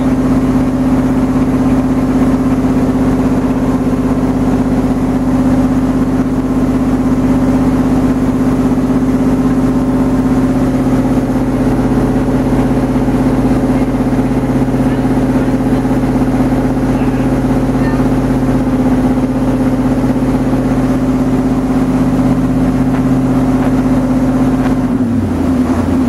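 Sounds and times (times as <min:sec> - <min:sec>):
boat diesel engine droning: 0:00.0 - 0:26.0.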